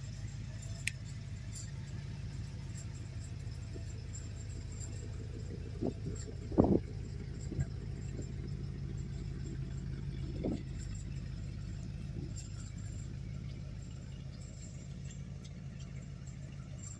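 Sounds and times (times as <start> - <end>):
car engine idling: 0.0 - 16.9.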